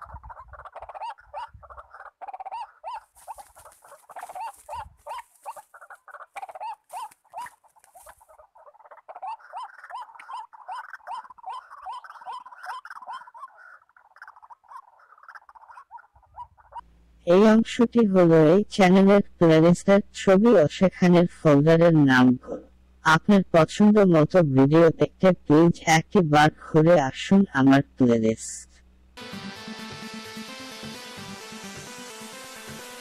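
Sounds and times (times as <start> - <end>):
bird croaking call: 0.0 - 16.9.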